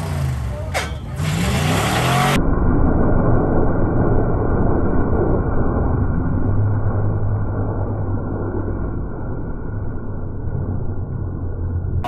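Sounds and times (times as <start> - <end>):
car engine at high revs: 0.0 - 2.6.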